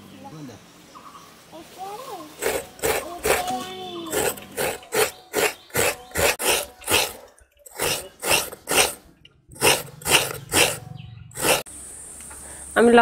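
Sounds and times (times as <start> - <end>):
coconut rasping on scraper: 2.4 - 9.0, 9.6 - 10.8, 11.4 - 11.7.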